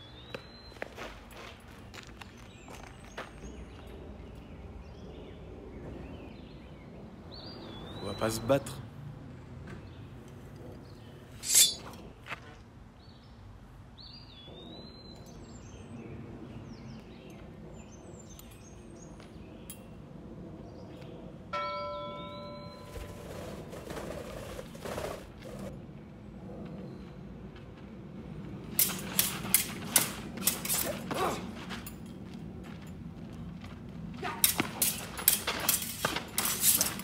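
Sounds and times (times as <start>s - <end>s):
birds chirping: 0.0s - 27.3s
sword blades clanging: 11.4s - 12.0s, 28.8s - 31.2s, 34.4s - 37.0s.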